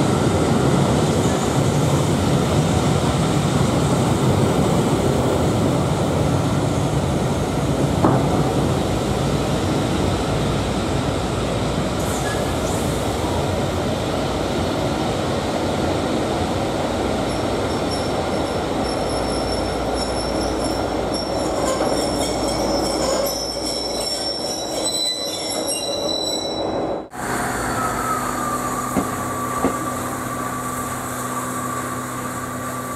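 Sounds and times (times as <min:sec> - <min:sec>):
train coaches rumbling past: 0:00.0 - 0:32.9
metallic wheel squealing: 0:17.3 - 0:26.8.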